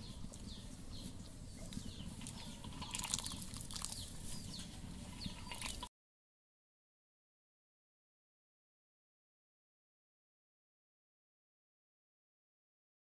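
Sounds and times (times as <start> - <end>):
small birds chirping: 0.0 - 5.9.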